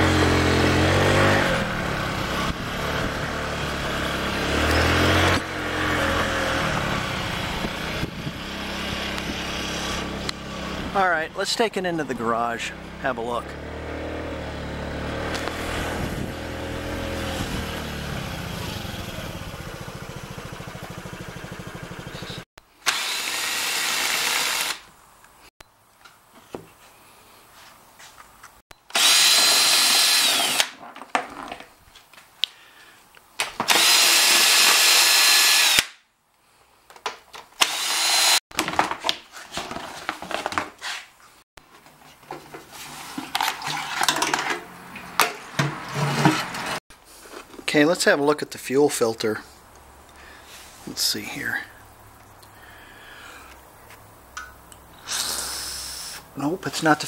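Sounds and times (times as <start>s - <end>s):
scooter engine running: 0.0s - 11.0s, 12.6s - 22.4s
cordless impact driver: 22.8s - 24.8s, 28.9s - 30.8s, 33.6s - 36.0s, 37.6s - 38.4s
knocks and rattles of parts: 29.3s - 32.2s, 38.5s - 40.8s, 41.6s - 46.8s.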